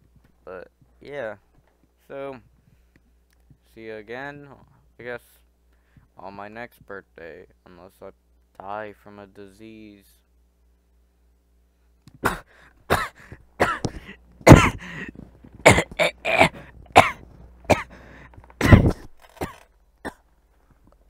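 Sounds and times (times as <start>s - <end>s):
person coughing: 12.2s - 18.0s, 18.6s - 20.2s.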